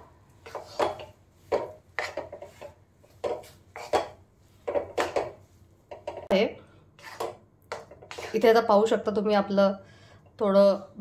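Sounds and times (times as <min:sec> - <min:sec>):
metal spatula scraping a pan: 0:00.0 - 0:05.4, 0:07.0 - 0:08.5.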